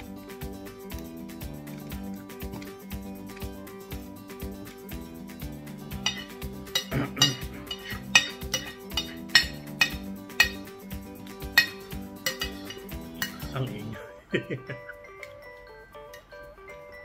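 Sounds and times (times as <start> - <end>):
background music: 0.0 - 17.0
cutlery clinking on a plate: 5.9 - 10.8, 11.4 - 13.6.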